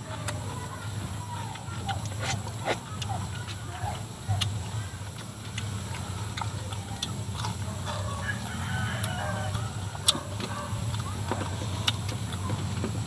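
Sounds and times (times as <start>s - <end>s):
crisp food being chewed: 0.0s - 13.0s
chickens clucking: 5.6s - 12.9s.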